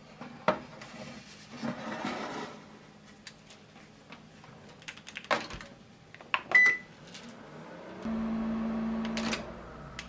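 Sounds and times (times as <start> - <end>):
oven humming: 6.9 - 10.0.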